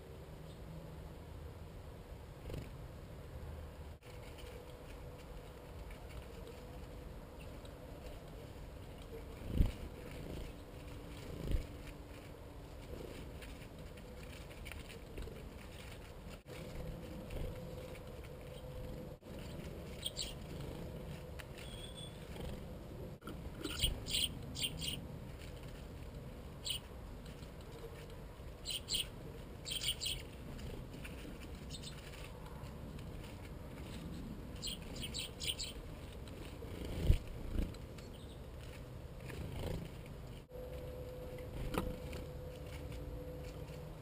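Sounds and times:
small birds chirping: 17.3s - 22.7s, 23.5s - 25.8s, 26.5s - 32.4s, 33.2s - 40.4s.

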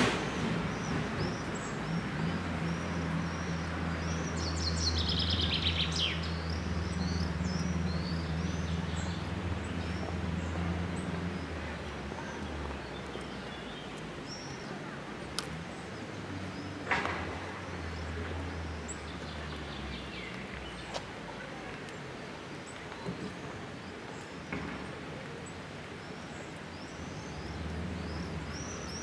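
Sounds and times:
birds singing and chirping: 0.2s - 14.9s, 21.9s - 29.0s.

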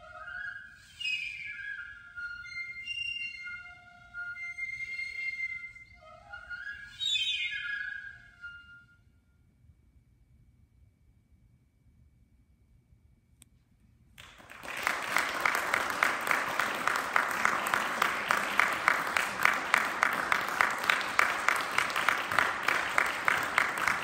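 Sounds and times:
audience applause: 14.2s - 24.0s
loud claps close by: 14.2s - 24.0s.

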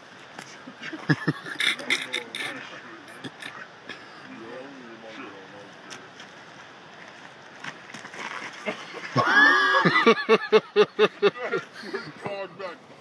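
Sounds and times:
men laughing loudly: 0.8s - 3.5s, 8.6s - 12.5s.

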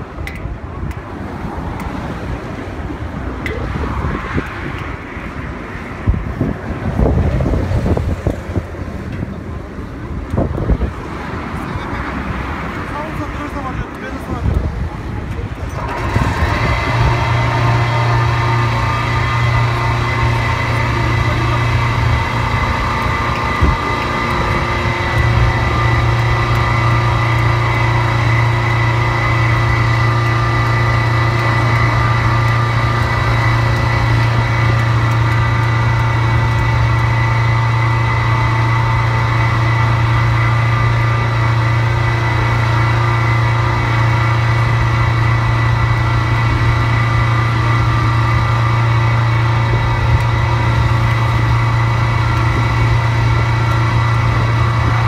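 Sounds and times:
motor humming with whine: 13.0s - 55.0s.

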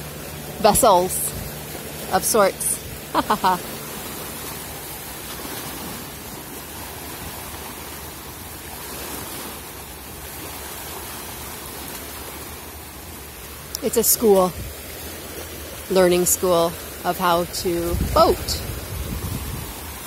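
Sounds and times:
water washing against rocks: 0.0s - 20.0s
wind on microphone: 17.5s - 20.0s.

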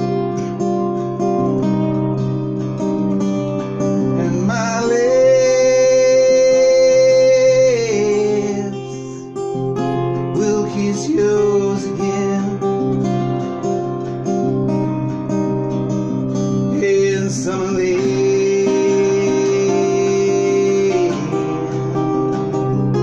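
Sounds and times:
acoustic guitar strumming: 0.0s - 23.0s
man singing: 3.8s - 13.4s, 16.6s - 23.0s.

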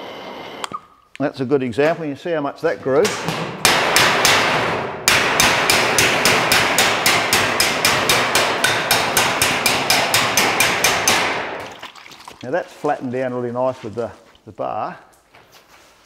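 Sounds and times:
body slapper striking steel panel: 3.1s - 11.7s.

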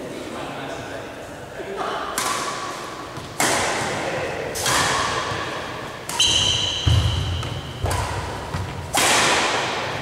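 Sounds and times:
badminton racket hitting shuttlecock: 2.2s - 4.0s, 4.6s - 10.0s.

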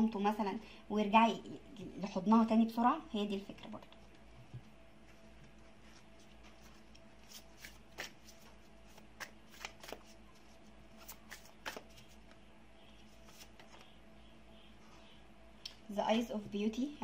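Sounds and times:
faint steady hum: 0.0s - 17.0s
cards snapping and flicking: 9.2s - 10.1s, 11.0s - 12.0s.

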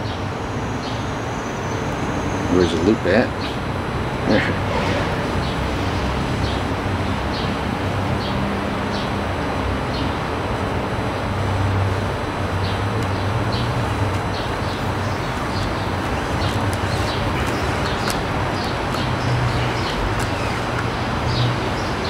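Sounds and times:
steady rumble and hiss: 2.5s - 22.0s
small birds chirping: 12.6s - 22.0s.

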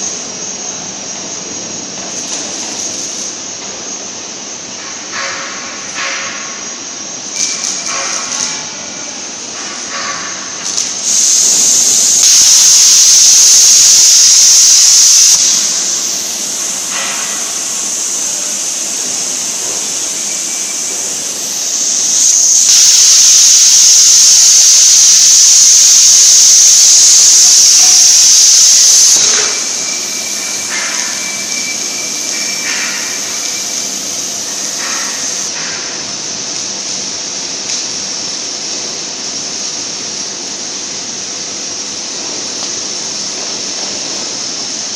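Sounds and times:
plasma arc hissing: 10.7s - 35.5s.

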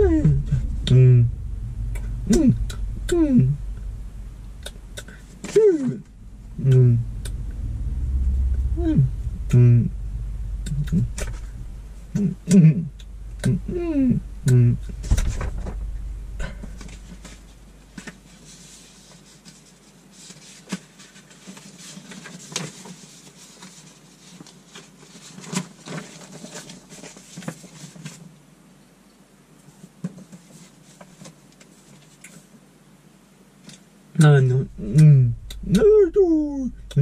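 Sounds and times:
paper rustling and crinkling: 18.4s - 28.3s.

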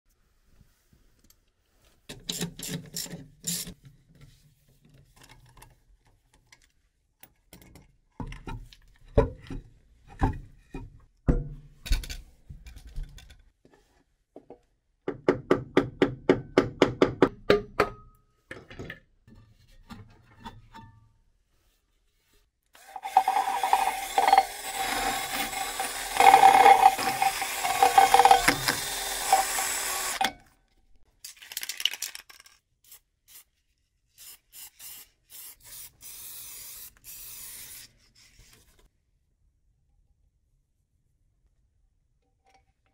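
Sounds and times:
hand tool sharp strokes: 22.8s - 30.3s
power tool whining: 22.8s - 30.3s.

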